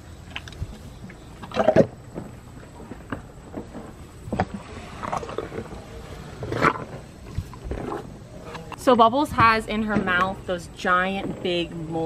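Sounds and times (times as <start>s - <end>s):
elephant chewing crunchily: 0.2s - 8.9s.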